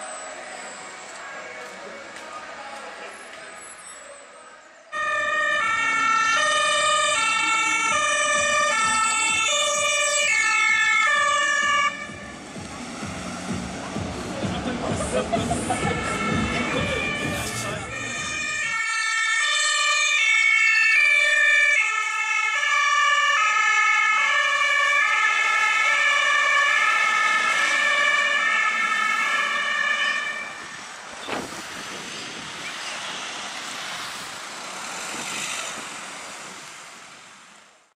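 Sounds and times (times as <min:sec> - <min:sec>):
street noise: 0:00.0 - 0:38.0
ambulance two-tone siren: 0:04.9 - 0:12.4, 0:15.4 - 0:30.9.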